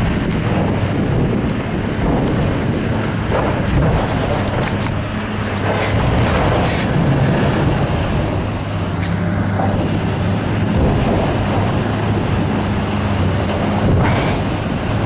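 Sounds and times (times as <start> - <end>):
excavator diesel engine running: 0.0 - 15.0
faint crunches: 3.4 - 7.0.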